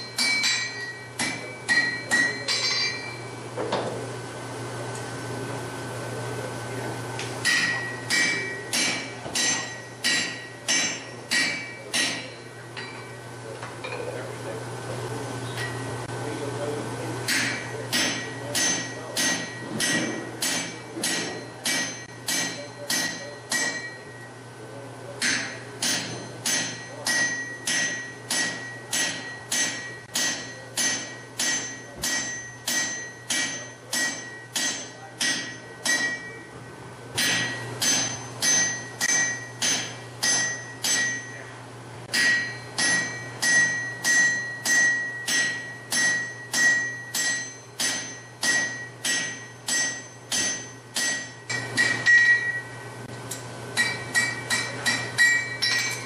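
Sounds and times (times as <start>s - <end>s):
hammer striking steel on anvil: 0.0s - 3.8s, 7.4s - 13.2s, 15.6s - 15.9s, 17.2s - 24.3s, 25.2s - 36.5s, 37.1s - 56.0s.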